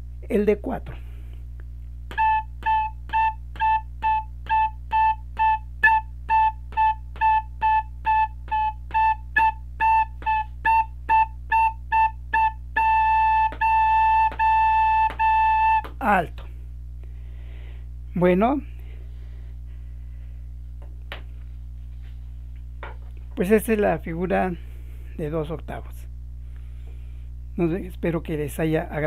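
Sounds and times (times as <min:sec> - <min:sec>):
recorder playing single note: 0:02.1 - 0:16.1.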